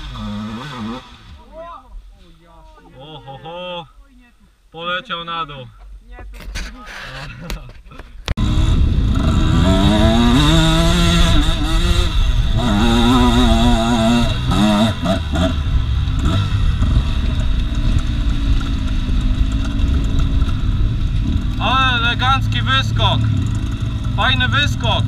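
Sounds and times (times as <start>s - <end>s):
motorcycle engine revving: 0.0s - 1.4s, 8.4s - 25.0s.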